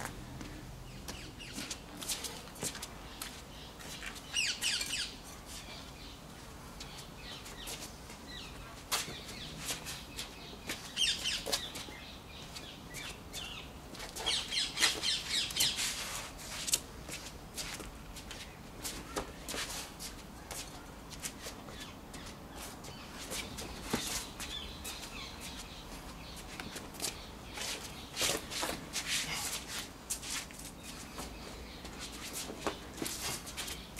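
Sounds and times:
footsteps scuffing on paving stones: 0:00.0 - 0:05.7, 0:06.8 - 0:33.9
bird chirping: 0:03.0 - 0:06.2, 0:06.9 - 0:15.8.

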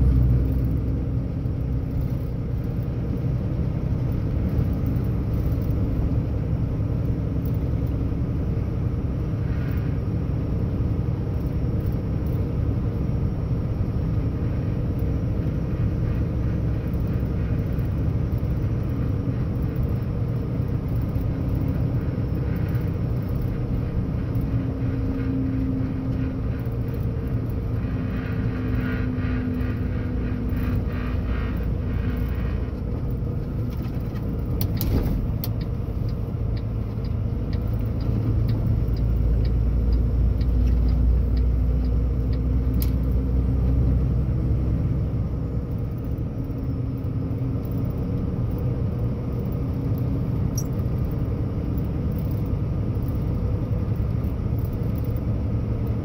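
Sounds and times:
truck diesel engine running: 0:00.0 - 0:56.0
tyre and road noise: 0:00.0 - 0:56.0
light even ticks: 0:30.5 - 0:44.0, 0:45.7 - 0:56.0.

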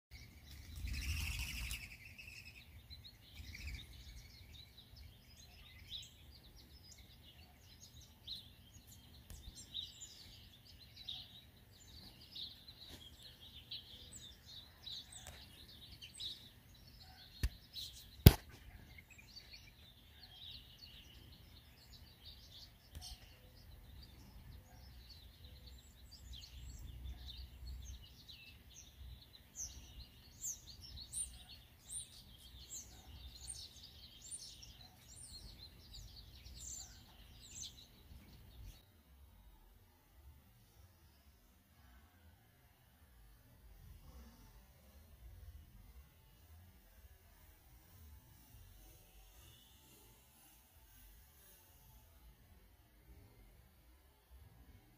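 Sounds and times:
small birds chirping: 0:00.1 - 0:38.9.

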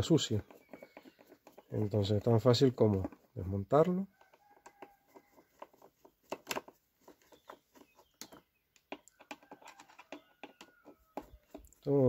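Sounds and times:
screwdriver clicking and creaking: 0:04.2 - 0:11.9.

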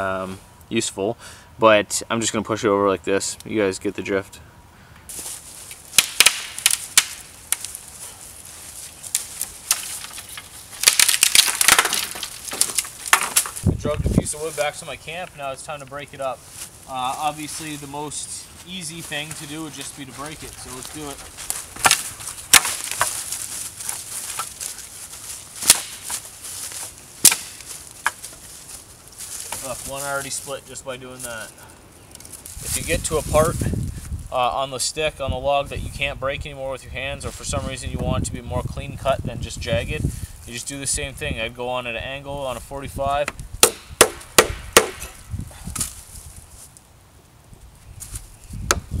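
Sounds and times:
dry leaves rustling: 0:05.1 - 0:34.4, 0:45.2 - 0:48.6
tree trunk cracking and splintering: 0:05.7 - 0:07.9, 0:09.0 - 0:13.7, 0:20.9 - 0:28.4.

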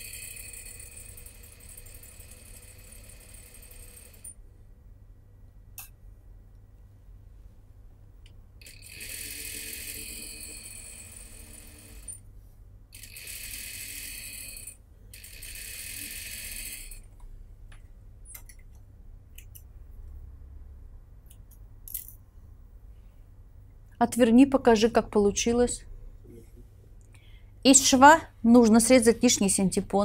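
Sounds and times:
sewing machine stitching: 0:00.0 - 0:04.3, 0:08.6 - 0:12.2, 0:13.0 - 0:17.0.

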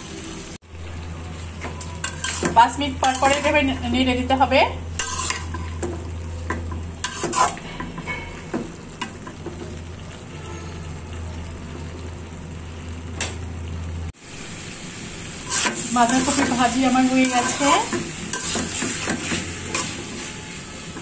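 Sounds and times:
vegetables sizzling in a pan: 0:00.0 - 0:21.0
metal spatula scraping a pan: 0:01.5 - 0:03.8, 0:04.9 - 0:05.9, 0:07.0 - 0:09.4, 0:15.4 - 0:21.0.

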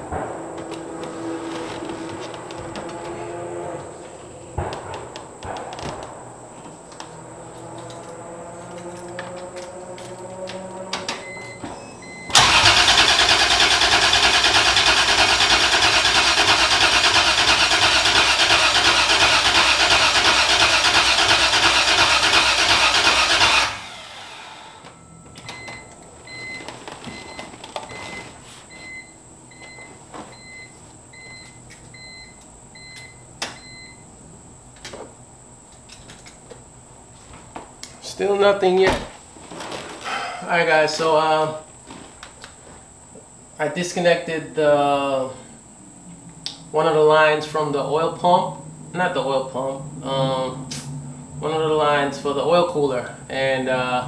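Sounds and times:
engine cranking on starter: 0:12.2 - 0:24.8.

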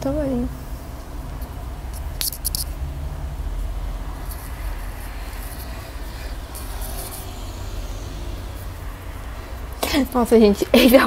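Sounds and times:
steady low rumble: 0:00.0 - 0:10.5
scratchy rubbing on microphone cord: 0:04.2 - 0:08.8.

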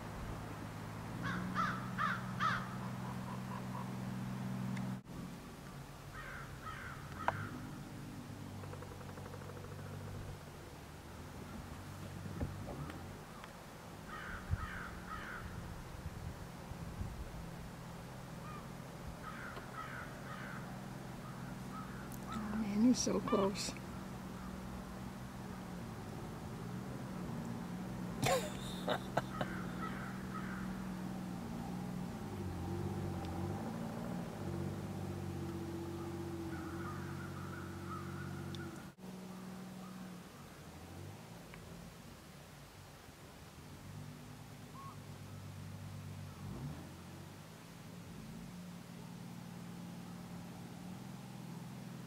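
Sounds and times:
boat engine drone: 0:00.0 - 0:52.0
bird calling: 0:01.2 - 0:05.0, 0:06.1 - 0:10.4, 0:12.7 - 0:15.7, 0:18.4 - 0:25.7, 0:28.2 - 0:31.0, 0:35.5 - 0:40.6, 0:44.7 - 0:45.4.

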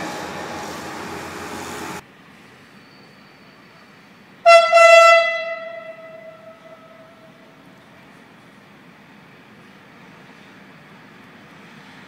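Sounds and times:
locomotive horn blast: 0:04.4 - 0:07.3.

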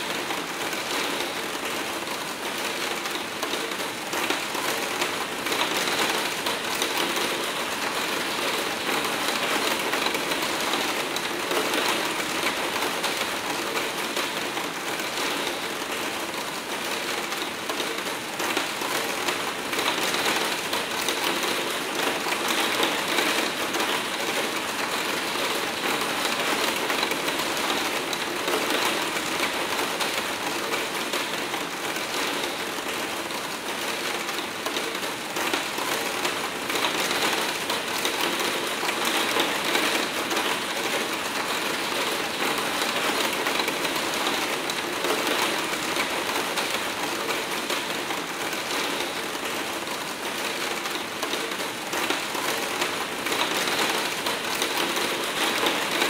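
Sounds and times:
hard rain on a window: 0:00.0 - 0:56.0.

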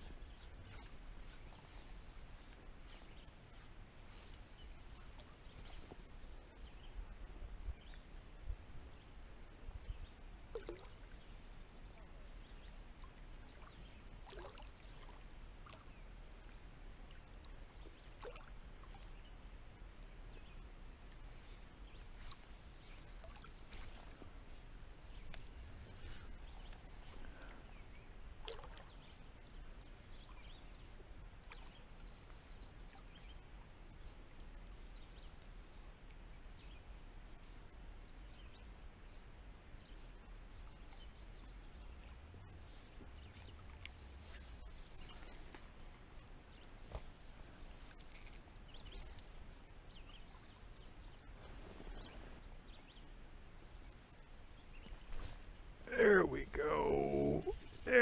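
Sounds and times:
water lapping and sloshing: 0:00.0 - 0:06.2, 0:10.5 - 0:11.3, 0:13.0 - 0:19.2, 0:21.5 - 0:27.6, 0:28.4 - 0:29.2, 0:30.2 - 0:33.5, 0:43.1 - 0:49.5
light water splashes: 0:10.4 - 0:11.5, 0:12.3 - 0:19.3, 0:21.0 - 0:27.7, 0:28.3 - 0:36.2, 0:40.1 - 0:52.4.

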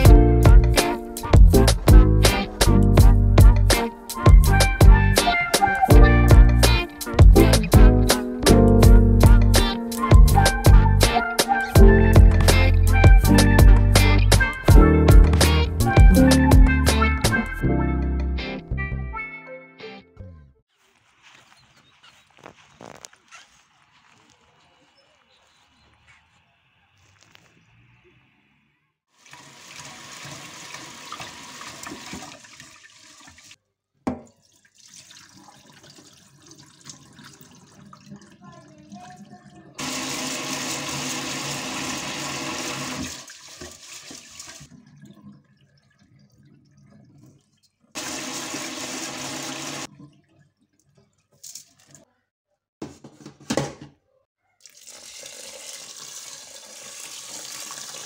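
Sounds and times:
tap water running into a pot: 0:29.2 - 0:46.0, 0:48.0 - 0:50.1, 0:54.6 - 0:58.0.

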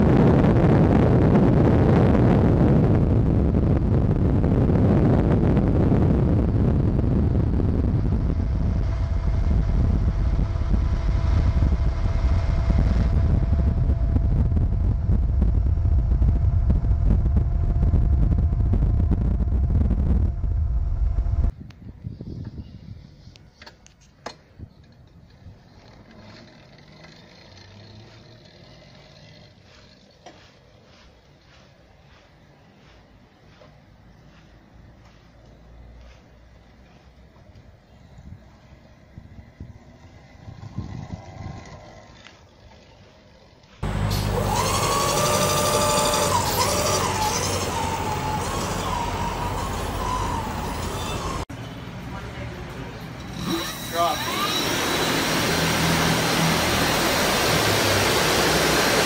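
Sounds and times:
electric motorcycle motor whining: 0:04.6 - 0:18.6, 0:25.2 - 0:30.6, 0:39.3 - 0:51.4, 0:53.2 - 0:59.0.

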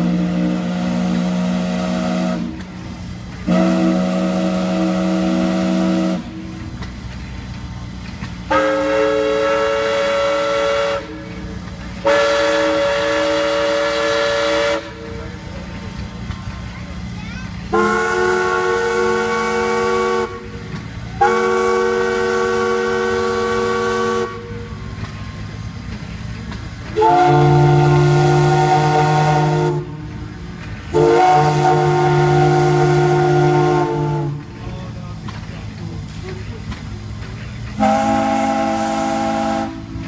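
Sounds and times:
steam whistle chord blasts: 0:08.5 - 0:11.2, 0:27.0 - 0:30.0, 0:30.9 - 0:34.4, 0:37.8 - 0:39.9.

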